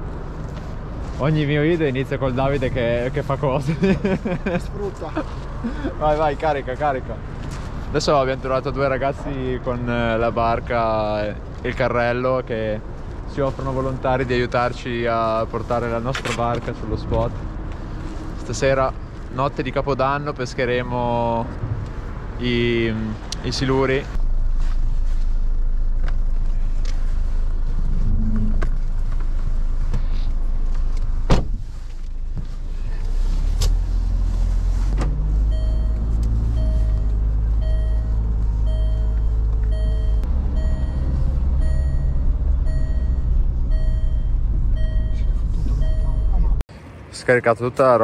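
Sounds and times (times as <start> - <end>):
car engine and tyre rumble: 0.0 - 48.0
thump: 31.3 - 31.6
dashboard warning chime: 35.5 - 46.6.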